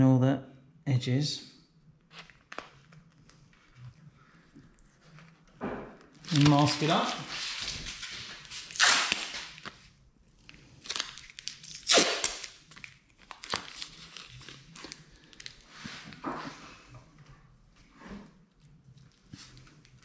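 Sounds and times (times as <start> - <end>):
masking paper and tape crinkling: 2.0 - 16.6.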